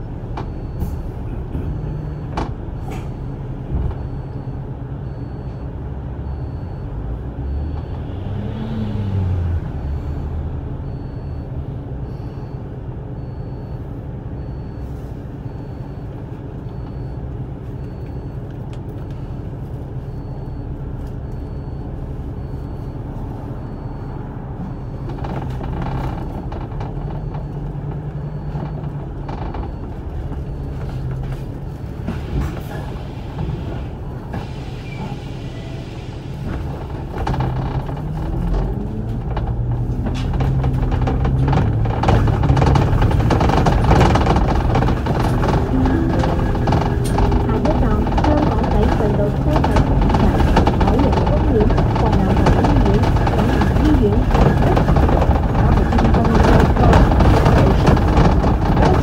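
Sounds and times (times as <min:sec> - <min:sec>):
bus body rattling: 0:00.0 - 0:06.8, 0:21.2 - 0:59.0
bus diesel engine droning: 0:00.0 - 0:59.0.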